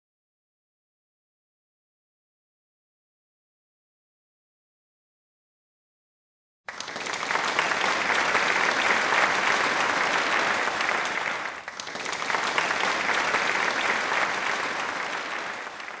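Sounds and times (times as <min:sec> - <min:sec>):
crowd applause: 0:06.7 - 0:16.0.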